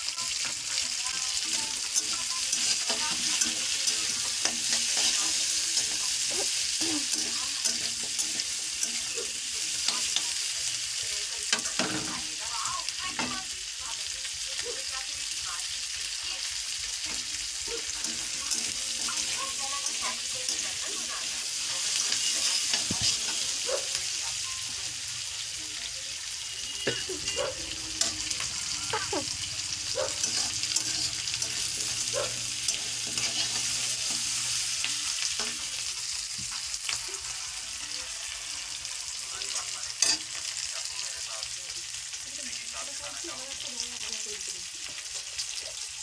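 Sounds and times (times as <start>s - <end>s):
onions sizzling in hot oil: 0.0s - 46.0s
metal spatula scraping pan: 0.2s - 10.8s, 17.0s - 24.0s, 26.7s - 36.5s.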